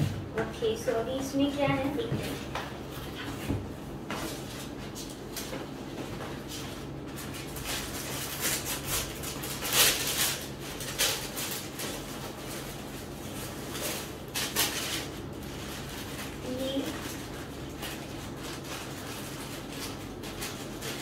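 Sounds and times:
tissue paper rustling: 6.3s - 21.0s.

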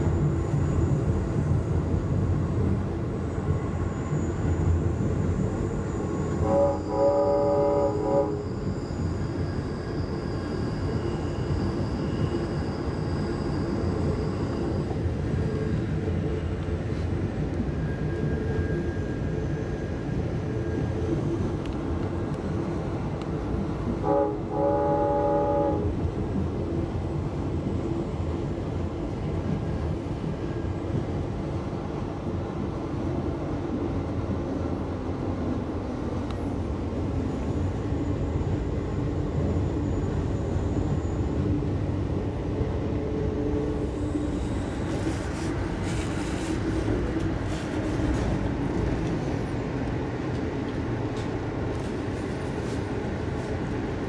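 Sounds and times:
train coach rumbling on track: 0.0s - 54.0s
locomotive horn: 6.4s - 8.5s, 24.0s - 26.0s.

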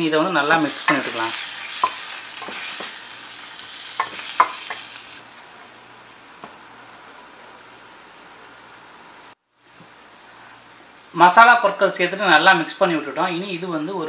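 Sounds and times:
food sizzling in pan: 0.0s - 14.0s
spatula scraping hiss: 0.4s - 10.8s
wooden spatula knocking pan: 4.0s - 4.8s.

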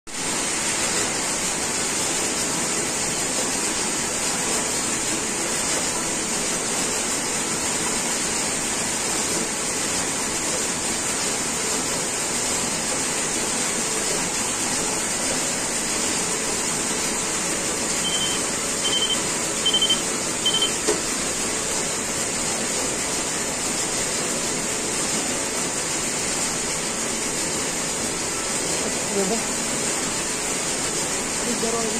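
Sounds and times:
hissing machine-room noise: 0.1s - 31.9s
short key beeps: 18.0s - 20.8s.

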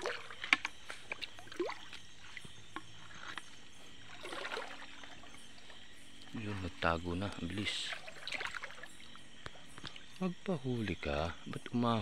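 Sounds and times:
water splashing by hand: 0.0s - 2.5s, 4.1s - 5.3s.

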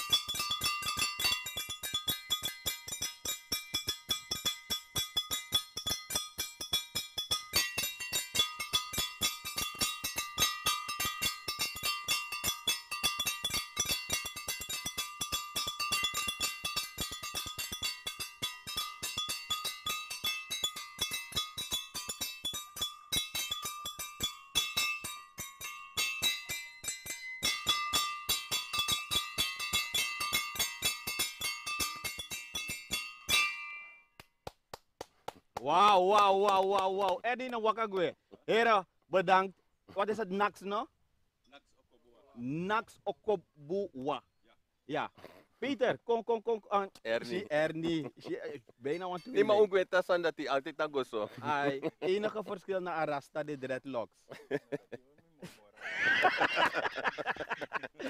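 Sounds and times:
metal percussion clinking: 0.0s - 34.2s, 47.2s - 53.3s, 55.9s - 58.0s.

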